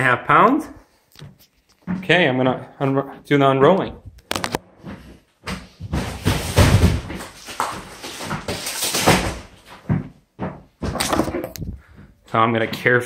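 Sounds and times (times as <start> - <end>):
rustling and knocking from handling: 4.8 - 12.2.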